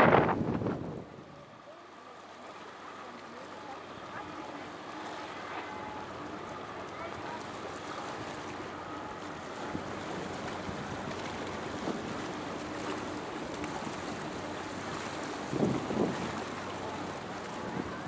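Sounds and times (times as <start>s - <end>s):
wind on microphone: 0.0s - 1.4s, 15.4s - 16.5s
faint boat engine hum: 0.0s - 18.0s.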